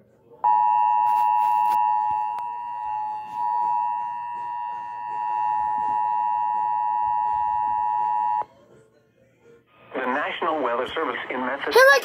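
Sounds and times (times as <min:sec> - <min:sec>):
two-tone alarm: 0:00.4 - 0:08.4.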